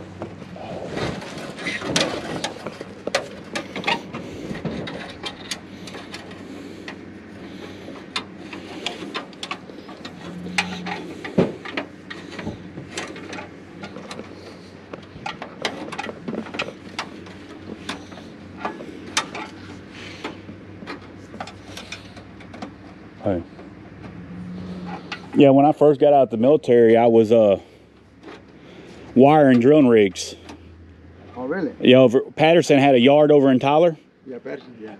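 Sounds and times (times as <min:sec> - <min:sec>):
low hum: 0:00.0 - 0:25.4
hand tools clicking and knocking: 0:01.0 - 0:23.0.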